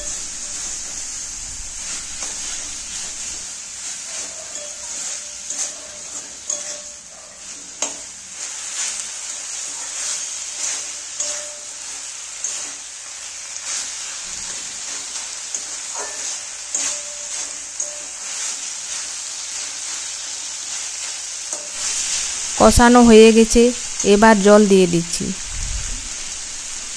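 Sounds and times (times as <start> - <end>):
meat sizzling in oil: 0.0 - 26.9
metal spatula scraping pan: 4.0 - 8.1, 9.6 - 11.8, 13.8 - 18.6.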